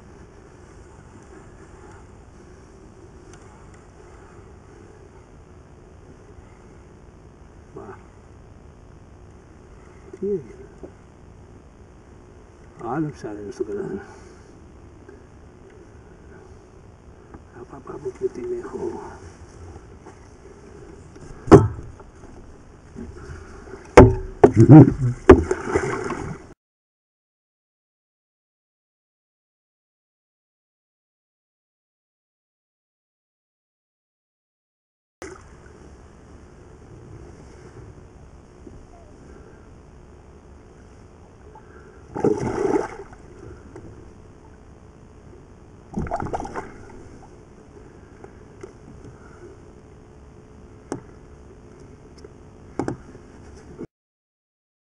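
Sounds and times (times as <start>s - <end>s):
knocks and thumps on boat: 21.4s - 22.1s, 23.8s - 26.4s
water noise: 21.4s - 26.5s, 35.2s - 36.0s, 41.2s - 44.6s, 45.8s - 47.8s.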